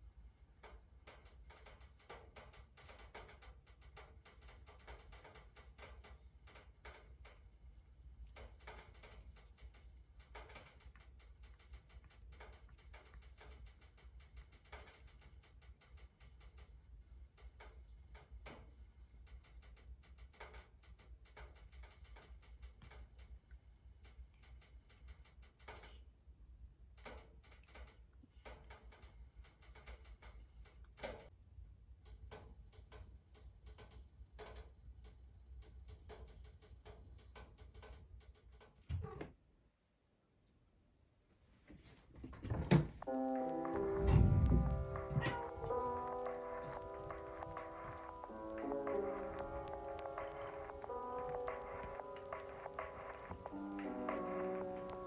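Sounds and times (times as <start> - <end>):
faint ticks and clicks: 0.0 - 39.3, 42.7 - 55.0
low steady hum: 43.0 - 55.0.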